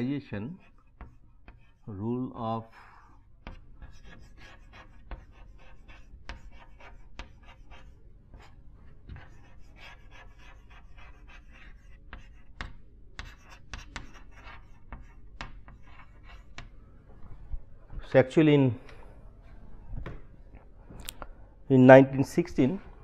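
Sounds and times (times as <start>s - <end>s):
chalk scratching on chalkboard: 0.0s - 16.7s
chalk tapping on board: 0.6s - 1.8s, 3.4s - 16.7s.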